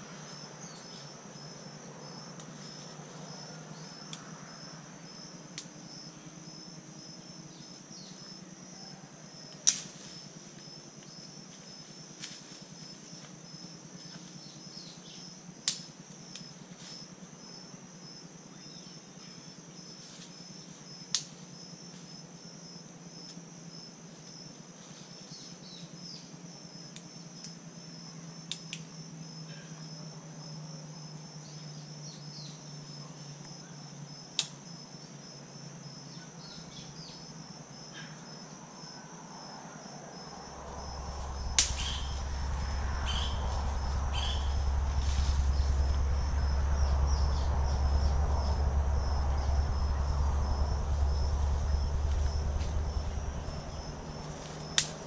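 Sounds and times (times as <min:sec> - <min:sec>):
pulsing insect chorus: 0:00.0 - 0:55.0
loud low rumble: 0:40.2 - 0:55.0
stems snapping: 0:41.5 - 0:46.0, 0:54.2 - 0:55.0.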